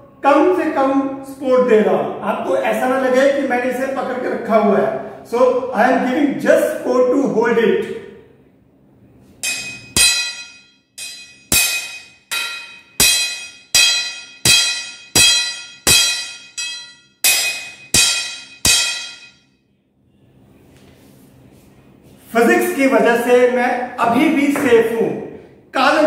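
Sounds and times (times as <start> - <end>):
hammer striking steel bar: 9.4 - 19.5
metallic ringing tone: 9.4 - 19.7.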